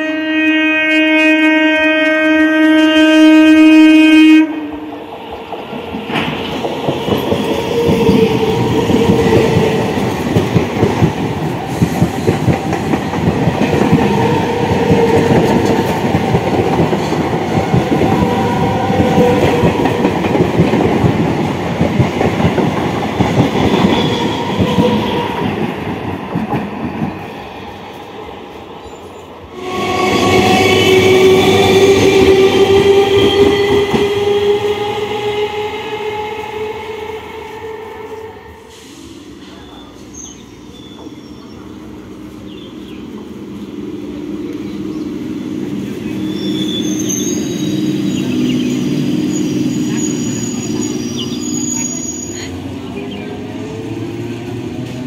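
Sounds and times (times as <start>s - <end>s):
train horn: 0.0s - 4.9s, 23.6s - 25.7s, 29.5s - 38.9s.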